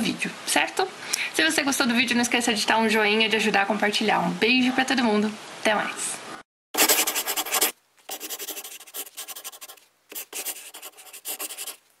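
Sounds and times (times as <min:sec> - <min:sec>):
pen scratching on paper: 0:06.8 - 0:11.8.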